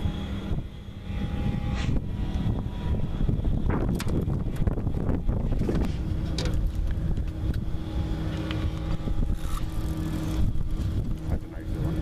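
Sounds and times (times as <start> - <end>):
boat motor humming: 0.0 - 12.0.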